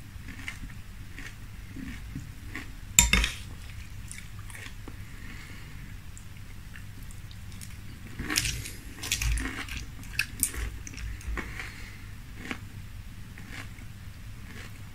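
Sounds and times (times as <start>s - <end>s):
spoon clinking on glass bowl: 3.0s - 3.4s
spoon scraping cereal: 3.0s - 4.2s, 8.2s - 11.6s
crunching cereal: 7.2s - 12.6s.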